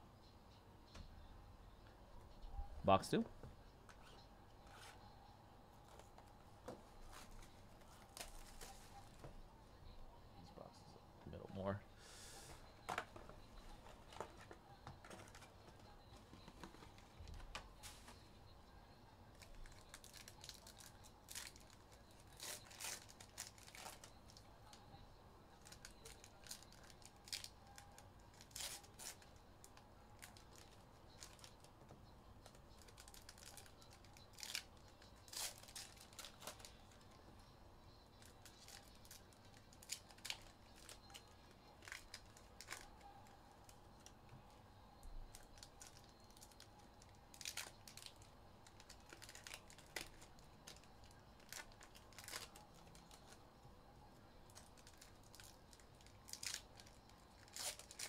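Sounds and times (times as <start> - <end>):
wrapping tearing and crinkling: 19.3 - 24.8, 25.6 - 31.7, 32.4 - 37.1, 38.2 - 44.1, 45.3 - 53.4, 54.5 - 58.0.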